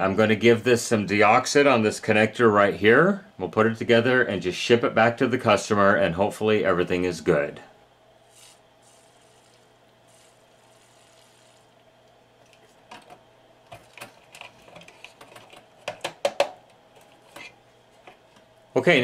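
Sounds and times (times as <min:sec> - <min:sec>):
faint steady hum: 0:00.0 - 0:19.0
contact cleaner spray hissing: 0:08.3 - 0:11.7
circuit boards clicking and tapping: 0:12.9 - 0:18.2.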